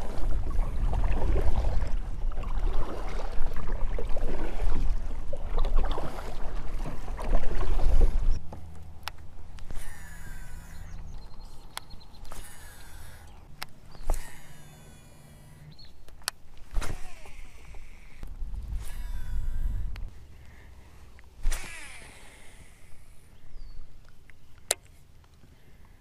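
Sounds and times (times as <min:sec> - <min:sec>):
paddle strokes splashing in water: 0:00.0 - 0:08.6
fishing reel whirring: 0:09.6 - 0:20.1, 0:21.4 - 0:23.4.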